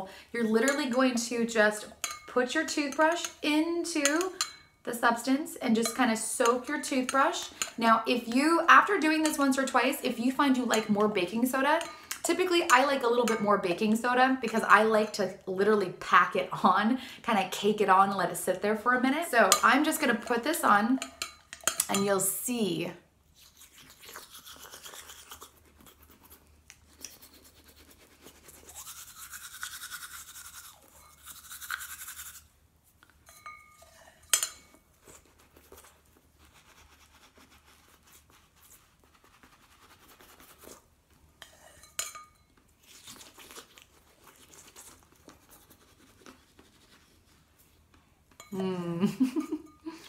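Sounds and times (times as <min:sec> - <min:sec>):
toothbrush scrubbing teeth: 0:23.3 - 0:32.6, 0:35.0 - 0:41.6, 0:42.8 - 0:47.6.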